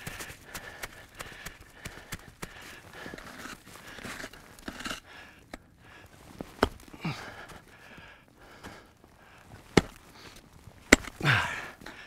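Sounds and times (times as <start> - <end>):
person breathing hard: 0.0 - 10.4, 11.0 - 12.0
person grunting: 6.9 - 7.4, 11.1 - 11.8
ice tools striking ice: 10.8 - 11.4.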